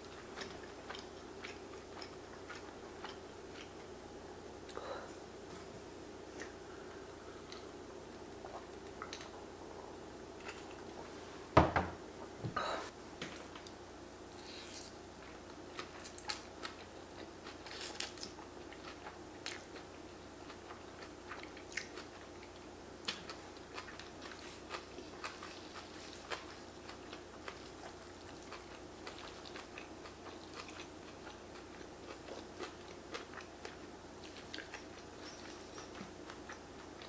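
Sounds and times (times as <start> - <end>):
person chewing noodles: 0.0 - 4.0, 14.4 - 37.0
faint steady hum: 0.0 - 37.0.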